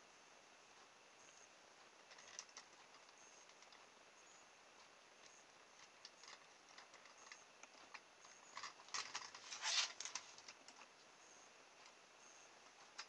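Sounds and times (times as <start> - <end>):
faint clicks and rustling: 1.3 - 4.0, 4.8 - 11.1
scraping clicks: 5.8 - 10.9.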